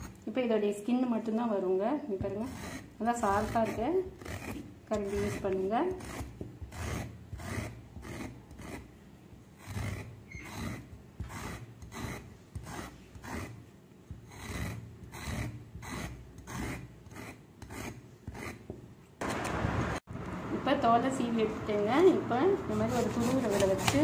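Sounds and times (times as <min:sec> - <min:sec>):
spoon scraping gourd skin: 0:02.1 - 0:18.7, 0:22.7 - 0:24.0.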